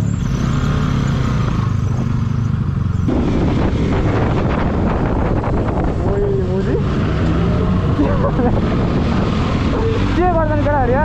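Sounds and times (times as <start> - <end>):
motorcycle engine running: 0.0 - 11.0
wind rushing over microphone: 3.1 - 11.0.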